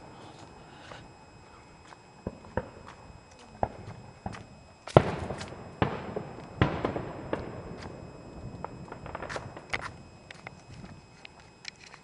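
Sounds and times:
firework booms with rolling echo: 2.2s - 2.9s, 3.6s - 10.2s
small sharp firework pops: 2.2s - 10.9s.

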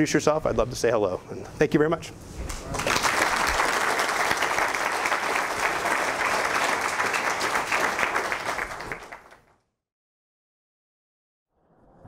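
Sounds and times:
audience applauding: 2.5s - 9.6s.

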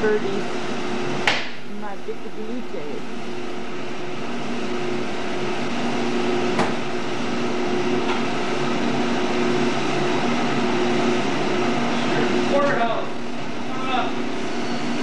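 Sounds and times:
electric machinery humming: 0.0s - 15.0s
low tone: 1.6s - 3.1s.

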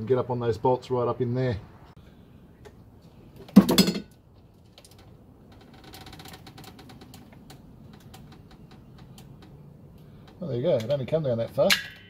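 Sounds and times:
small irregular clicks and creaks: 4.4s - 12.0s
loud short creak: 5.5s - 9.1s.

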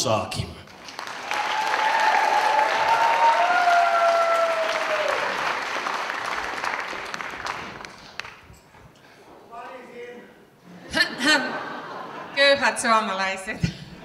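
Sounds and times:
audience applauding: 0.7s - 8.5s
whooping cheers: 1.2s - 5.5s.

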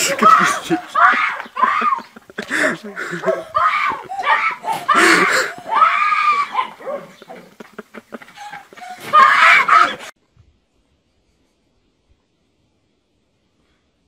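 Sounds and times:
boy screaming hoarsely: 0.0s - 2.1s, 3.2s - 6.8s, 9.0s - 10.1s.

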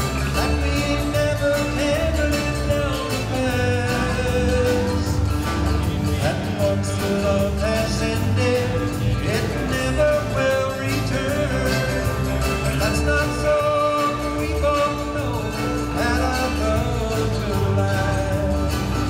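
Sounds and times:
live country band music: 0.0s - 19.0s.

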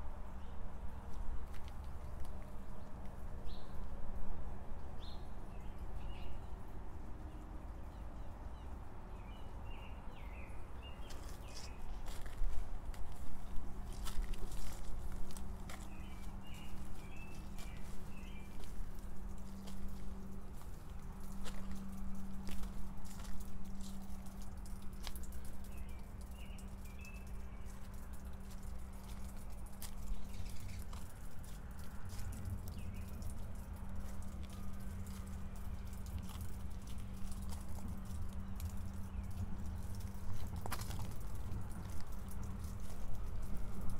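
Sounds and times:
low outdoor rumble: 0.0s - 43.9s
footsteps crunching on hail: 1.1s - 3.1s, 11.0s - 26.3s, 27.9s - 43.9s
small birds chirping: 5.0s - 43.9s
light clicks and taps: 11.0s - 43.9s.

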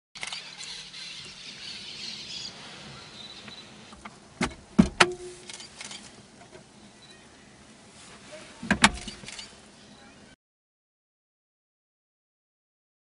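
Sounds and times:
faint high chirping: 0.2s - 3.9s, 6.8s - 7.6s
glove box latch clicking: 4.0s - 5.4s, 8.7s - 9.3s.

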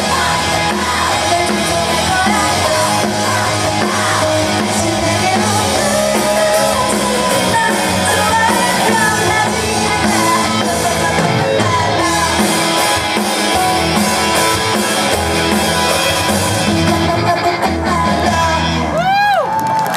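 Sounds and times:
woman singing into microphone: 0.0s - 12.7s, 16.7s - 19.1s
rock band playing: 0.0s - 19.9s.

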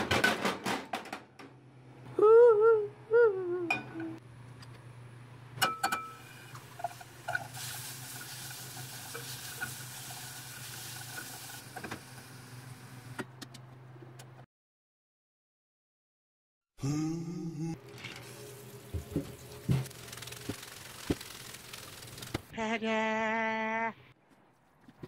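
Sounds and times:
vegetables sizzling in a pan: 6.6s - 12.7s.

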